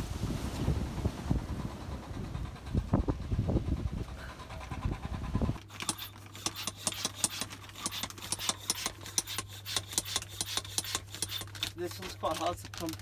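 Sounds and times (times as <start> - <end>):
wind buffeting microphone: 0.0 - 5.6
steady low hum: 0.0 - 12.2
hand pump hissing air: 5.6 - 12.5
plastic bag crinkling: 11.5 - 13.0.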